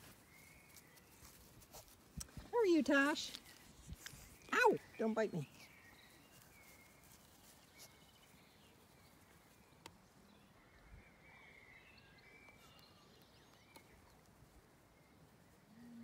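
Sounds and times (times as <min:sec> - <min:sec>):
faint bird chirps: 0:04.2 - 0:14.3.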